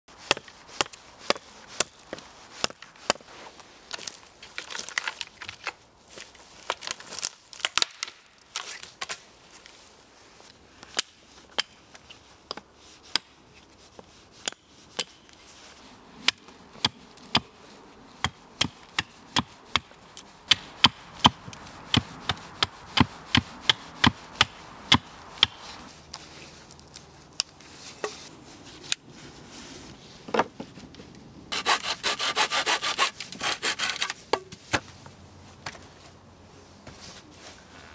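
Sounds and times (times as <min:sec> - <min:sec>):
axe chopping wood: 0:18.2 - 0:19.9, 0:20.5 - 0:25.6.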